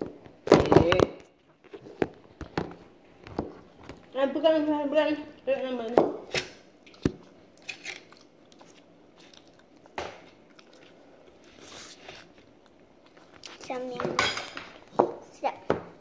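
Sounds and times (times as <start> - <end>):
chewing noodles: 7.6 - 13.6.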